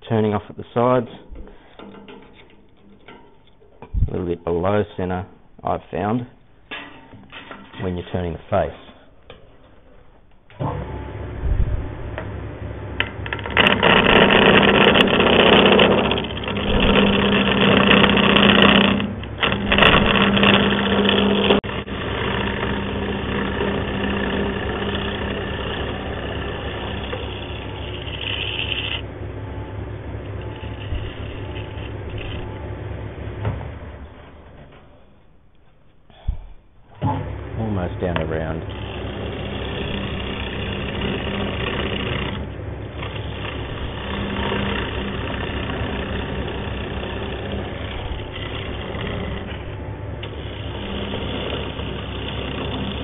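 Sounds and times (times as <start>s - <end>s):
lathe motor hum: 10.5s - 34.9s, 37.0s - 53.0s
turning tool cutting wood: 13.0s - 34.6s, 37.2s - 53.0s.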